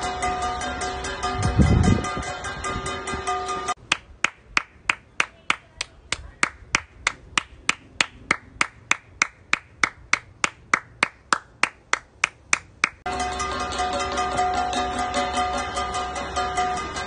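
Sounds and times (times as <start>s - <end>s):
person clapping hands: 3.9s - 13.0s.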